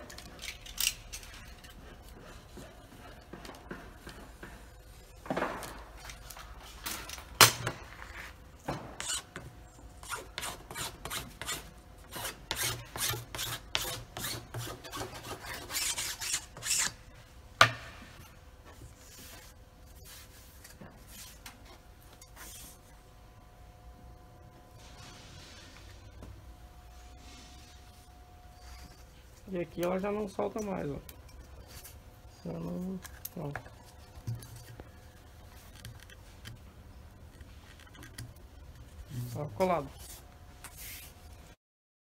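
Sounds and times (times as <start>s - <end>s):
file scraping wooden board: 10.0s - 17.0s.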